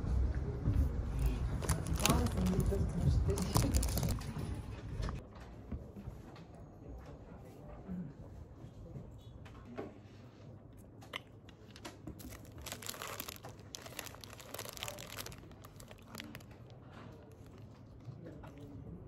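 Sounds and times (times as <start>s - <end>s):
plastic bag crinkling: 1.6s - 4.2s, 12.2s - 17.8s.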